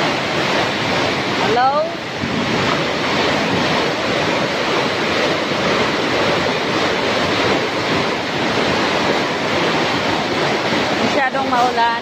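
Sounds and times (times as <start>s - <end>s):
heavy rain on a metal roof: 0.0s - 12.0s.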